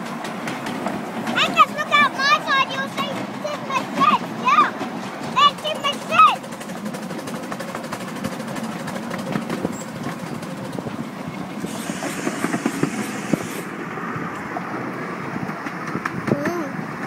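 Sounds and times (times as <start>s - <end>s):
train wheels clicking on rails: 0.0s - 17.0s
high hiss: 11.7s - 13.7s.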